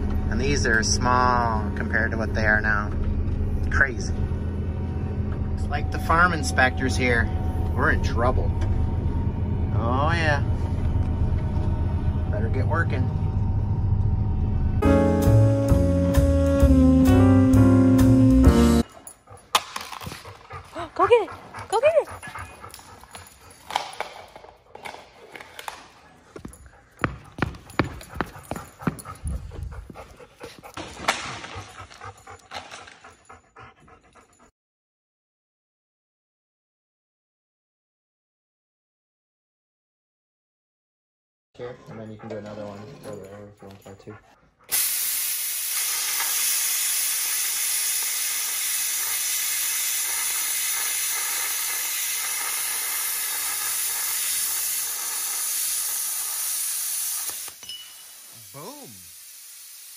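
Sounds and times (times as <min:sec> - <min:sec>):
dog panting: 0:18.8 - 0:34.5, 0:41.6 - 0:45.0, 0:48.9 - 0:56.4
dog paws clicking on concrete: 0:18.9 - 0:34.4, 0:41.8 - 0:44.4
plasma cutter hissing: 0:44.7 - 0:59.9.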